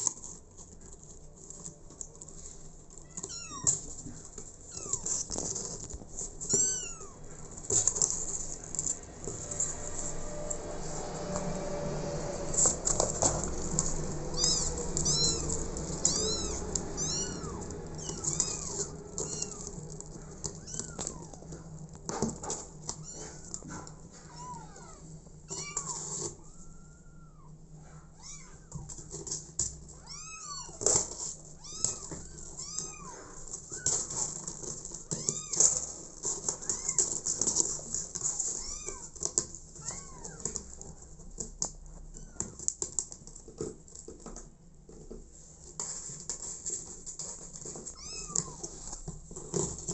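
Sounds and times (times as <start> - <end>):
kittens meowing: 3.0 - 3.9, 4.6 - 5.3, 6.4 - 8.0, 13.7 - 21.8, 22.9 - 28.9, 30.0 - 34.4, 35.1 - 37.4, 38.2 - 40.6, 47.9 - 49.0.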